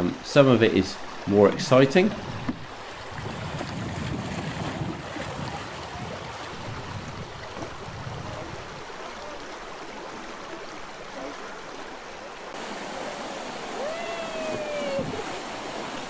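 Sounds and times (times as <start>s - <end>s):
water rushing down weir: 0.0s - 16.0s
wind on microphone rumble: 2.1s - 8.9s, 14.3s - 15.5s.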